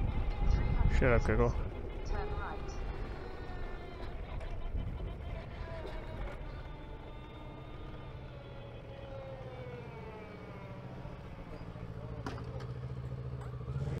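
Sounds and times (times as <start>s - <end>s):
electric motorcycle motor whine: 0.0s - 14.0s
road and wind rumble: 0.0s - 14.0s.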